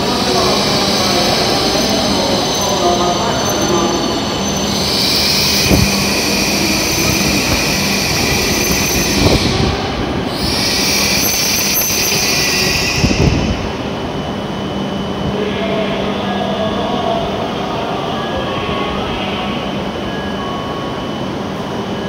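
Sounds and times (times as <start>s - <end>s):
train braking to a stop: 0.0s - 22.0s
high-pitched brake squeal: 2.3s - 9.7s, 10.3s - 13.6s.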